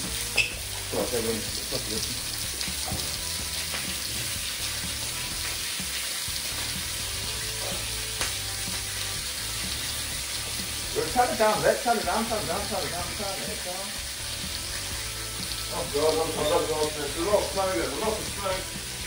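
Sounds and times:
steak sizzling in a frying pan: 0.0 - 19.0.

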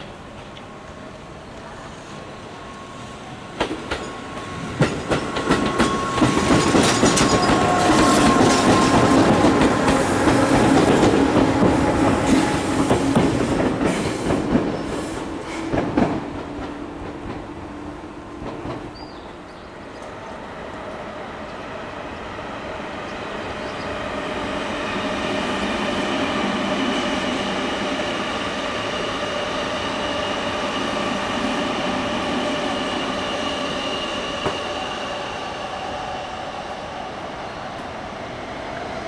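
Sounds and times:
train whine: 0.0 - 39.0
wheels clacking over rail joints: 3.6 - 15.0.

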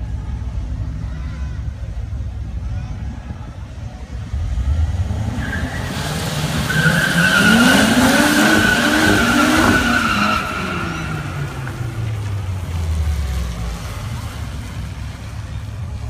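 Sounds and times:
car engine revving hard: 4.5 - 15.0
tyre squeal: 5.4 - 11.7.

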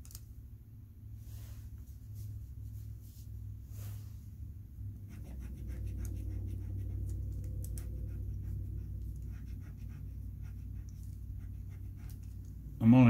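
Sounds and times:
steady low hum: 0.0 - 13.0
pencil scratching on paper: 5.0 - 12.5.

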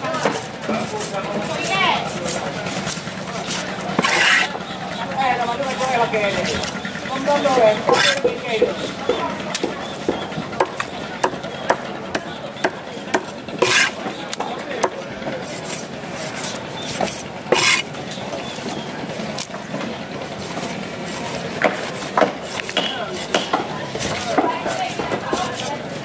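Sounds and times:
knife scraping through fish: 0.3 - 4.7, 7.7 - 8.3, 13.6 - 14.1, 15.4 - 19.5, 20.4 - 26.0
knife chopping on wooden block: 3.5 - 4.6, 7.8 - 8.4, 9.1 - 15.0, 16.4 - 17.9, 21.6 - 25.8.

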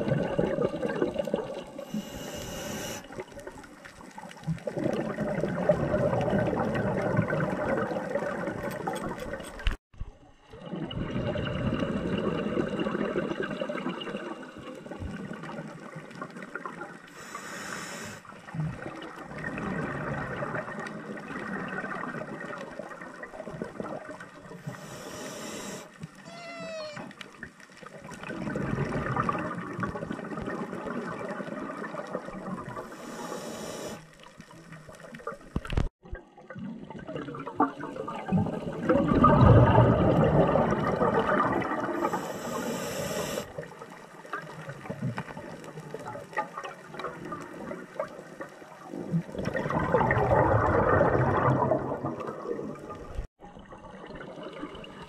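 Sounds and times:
bubbling exhale underwater: 0.0 - 3.6, 4.4 - 8.9, 10.6 - 27.0, 27.9 - 34.0, 35.6 - 43.8, 44.4 - 55.0
hissing regulator inhale: 1.8 - 3.1, 17.1 - 18.3, 24.6 - 26.0, 32.8 - 34.1, 42.0 - 43.5.

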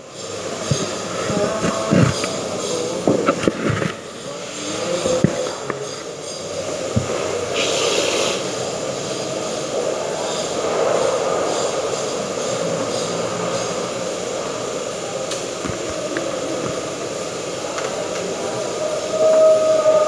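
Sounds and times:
steady machine noise: 0.0 - 20.0
brief hiss: 7.5 - 8.5.

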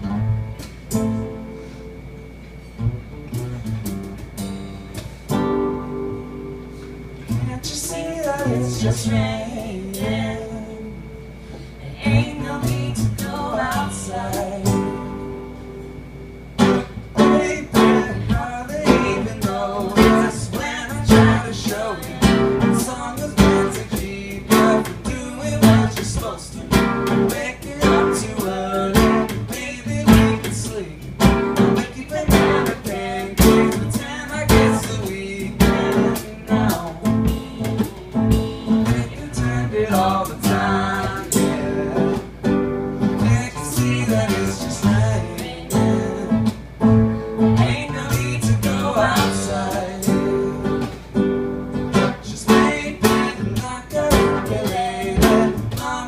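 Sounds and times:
strummed acoustic guitar: 0.0 - 56.0
drum kit steady beat: 16.6 - 47.1, 52.0 - 56.0.

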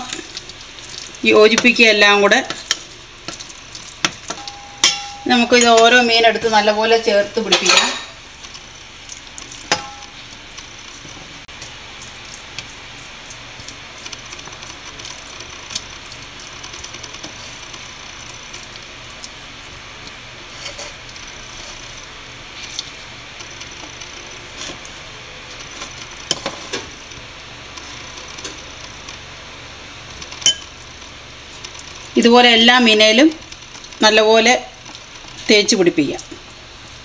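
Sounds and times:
utensils clinking on dishes: 4.0 - 6.0, 7.4 - 8.2, 9.7 - 10.2, 30.4 - 30.7.

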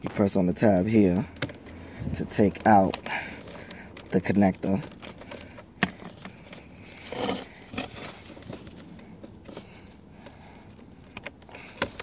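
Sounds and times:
rustling: 1.2 - 12.0.

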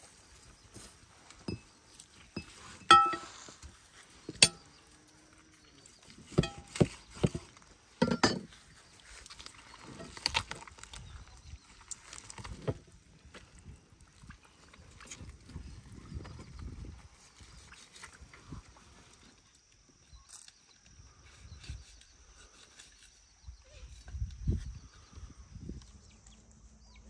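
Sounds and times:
sharp knocks and clinks: 1.4 - 1.7, 2.3 - 3.4, 4.3 - 4.7, 6.3 - 7.4, 8.0 - 8.5.

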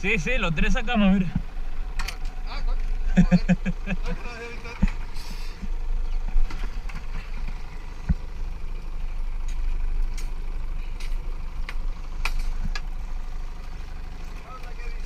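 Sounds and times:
boat engine idling: 0.0 - 15.0
knocks and clicks of gear: 1.3 - 2.4, 5.6 - 10.4, 11.0 - 12.9.

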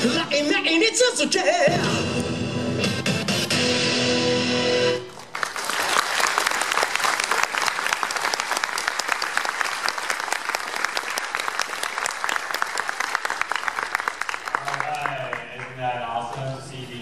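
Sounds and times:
music over speakers: 0.0 - 5.1
audience applause: 5.1 - 16.5.

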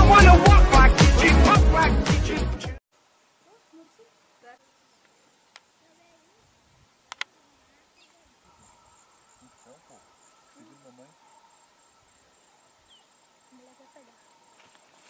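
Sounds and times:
pulsing insect calls: 3.0 - 15.0
sharp clicks: 7.1 - 7.3.

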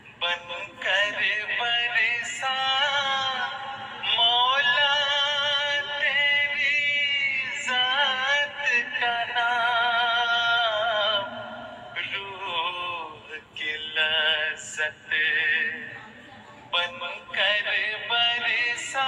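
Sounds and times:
person singing devotional song: 0.1 - 19.0.

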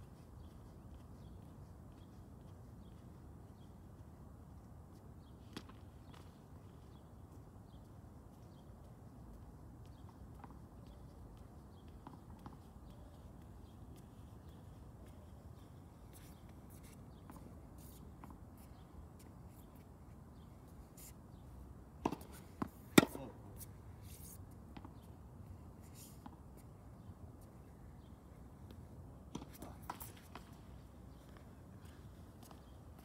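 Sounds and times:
low steady background noise: 0.0 - 33.0
racket hitting tennis ball: 22.0 - 23.4
tennis ball bouncing: 22.0 - 23.4.

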